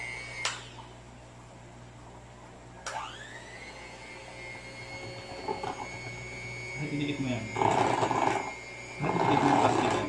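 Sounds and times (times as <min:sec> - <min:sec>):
electric hand mixer motor whine: 0:00.0 - 0:00.8, 0:02.9 - 0:10.0.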